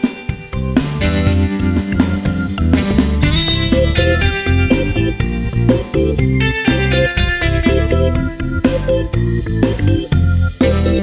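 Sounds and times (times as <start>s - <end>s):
plucked guitar music with beat: 0.0s - 11.0s.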